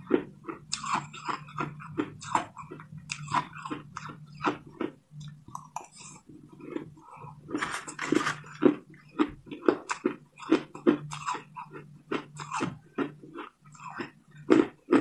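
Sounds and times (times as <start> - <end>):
low steady hum: 0.0 - 15.0.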